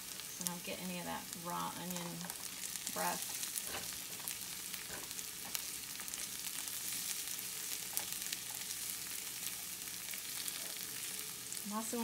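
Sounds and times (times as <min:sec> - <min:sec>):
onions sizzling in frying pan: 0:00.0 - 0:12.0
spatula stirring: 0:01.9 - 0:11.2.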